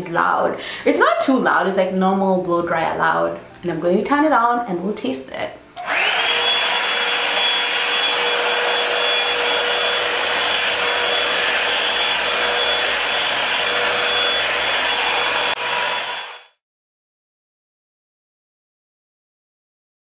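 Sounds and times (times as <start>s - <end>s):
hair dryer blowing air: 5.8s - 16.6s.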